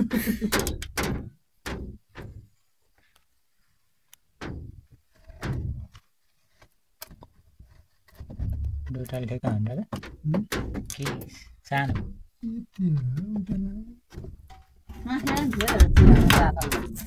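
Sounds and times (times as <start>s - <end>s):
knocks against wooden boards: 0.4s - 2.5s, 4.4s - 6.0s, 8.2s - 12.3s, 13.4s - 17.0s.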